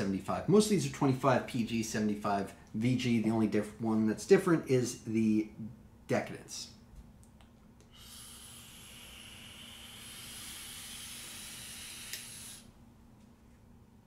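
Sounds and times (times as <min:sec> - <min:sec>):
vape hiss: 0:07.8 - 0:12.8.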